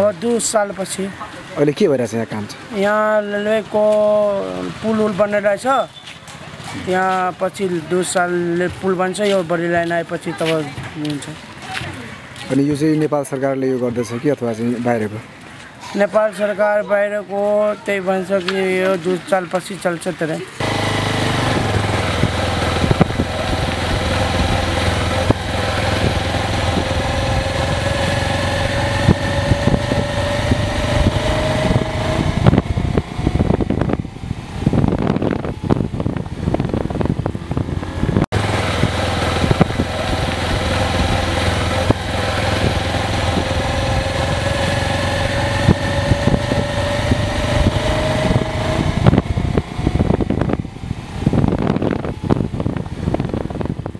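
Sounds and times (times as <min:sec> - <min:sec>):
rising engine whine: 0:20.6 - 0:53.9
vehicle engine running: 0:20.6 - 0:53.9.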